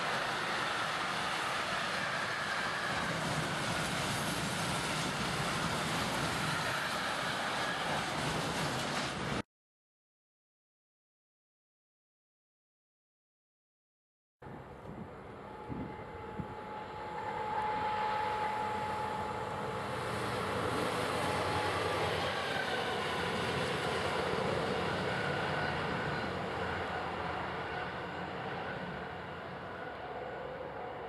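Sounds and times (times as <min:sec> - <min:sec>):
diesel locomotive engine drone: 0:00.0 - 0:09.4, 0:14.4 - 0:31.0
wheels on rails: 0:00.0 - 0:09.4.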